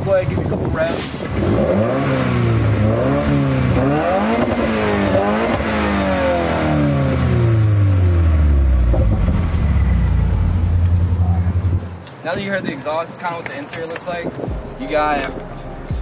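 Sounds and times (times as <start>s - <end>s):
car engine revving and idling: 0.0s - 12.0s.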